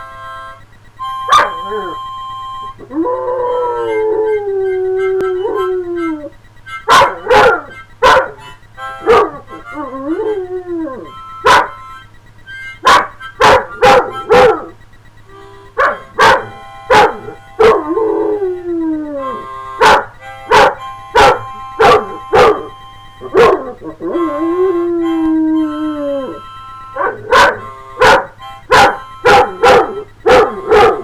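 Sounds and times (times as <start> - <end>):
harmonica chords: 0.0 - 31.0
dog howling and barking: 1.3 - 2.0, 2.8 - 8.4, 9.0 - 11.8, 12.8 - 14.8, 15.8 - 31.0.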